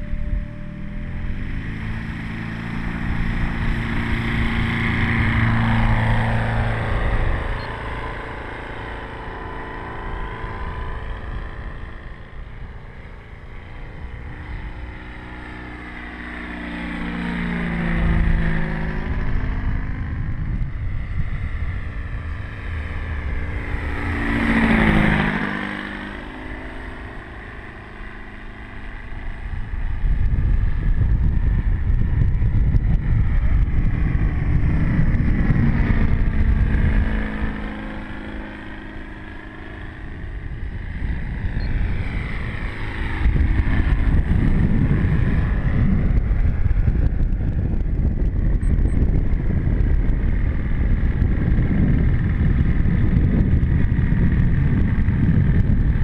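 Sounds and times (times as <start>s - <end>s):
model aircraft engine: 0.0s - 56.0s.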